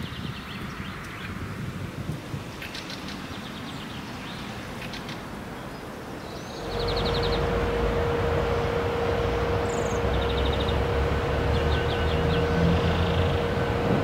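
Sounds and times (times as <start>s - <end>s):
birds chirping: 2.5s - 14.0s
electric train rumbling: 5.2s - 14.0s
bird trilling: 6.5s - 7.8s.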